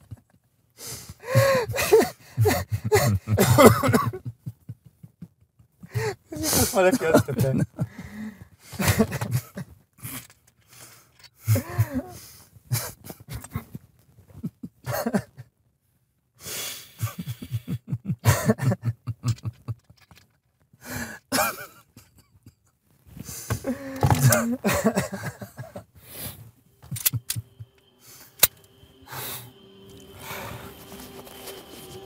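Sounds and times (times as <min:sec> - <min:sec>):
men laughing hard: 0:00.0 - 0:00.4, 0:01.2 - 0:09.7, 0:11.4 - 0:13.7, 0:14.4 - 0:15.5, 0:17.0 - 0:20.2, 0:21.0 - 0:22.7, 0:23.3 - 0:30.7
wheezy breaths: 0:00.8 - 0:03.3, 0:05.8 - 0:06.9, 0:07.8 - 0:08.9, 0:10.0 - 0:13.6, 0:16.4 - 0:17.8, 0:20.8 - 0:21.3, 0:23.1 - 0:32.0
coughing: 0:01.3 - 0:04.3, 0:21.3 - 0:22.6, 0:23.5 - 0:25.8.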